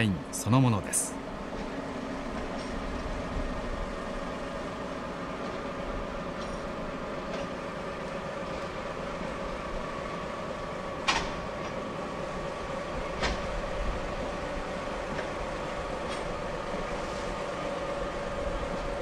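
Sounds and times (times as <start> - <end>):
train rolling noise: 0.0 - 19.0
sharp train clacks: 5.4 - 7.7, 13.0 - 13.7.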